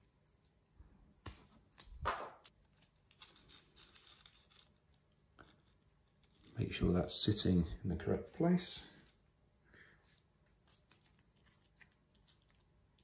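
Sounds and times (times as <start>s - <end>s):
hands handling tape: 10.2s - 13.0s.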